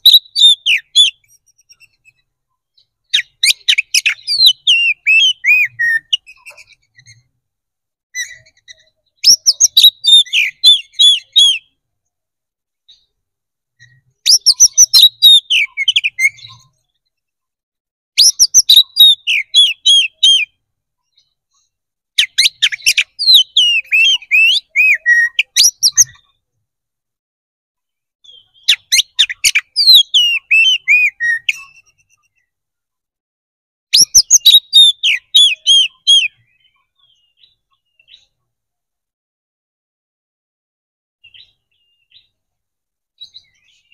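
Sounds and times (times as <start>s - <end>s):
bird singing whistled phrases: 0.0s - 2.2s, 2.8s - 7.3s, 8.2s - 11.7s, 13.8s - 16.6s, 18.2s - 21.2s, 22.2s - 26.3s, 28.2s - 32.1s, 33.9s - 38.3s.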